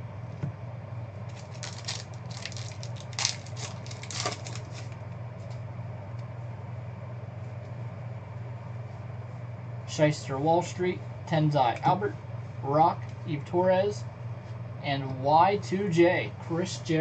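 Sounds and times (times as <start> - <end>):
low hum: 0.0 - 17.0
trading cards clicking and rustling: 1.3 - 5.0.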